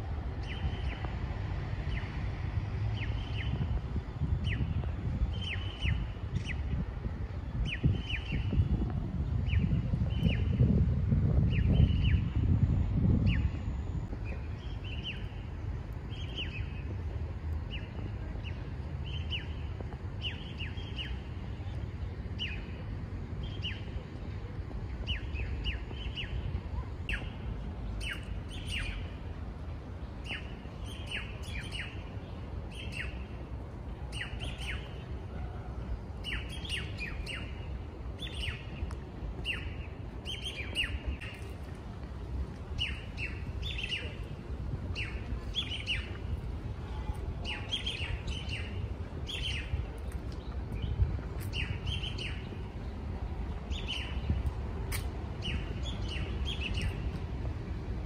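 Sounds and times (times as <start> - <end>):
low outdoor rumble: 0.0 - 58.0
small birds chirping: 24.8 - 29.2, 36.2 - 41.7, 42.6 - 57.2.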